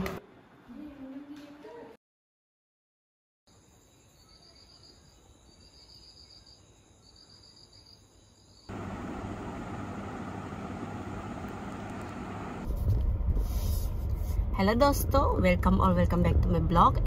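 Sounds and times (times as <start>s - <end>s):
insect chirping trills: 3.5s - 8.7s.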